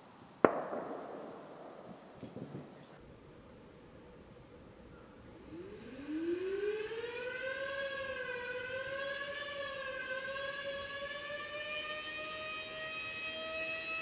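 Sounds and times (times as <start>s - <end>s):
electric siren wailing: 5.3s - 14.0s.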